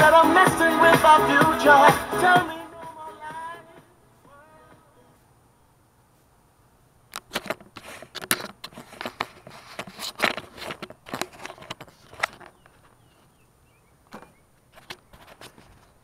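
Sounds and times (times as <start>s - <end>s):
camera handling clicks and rustles: 7.1s - 13.1s.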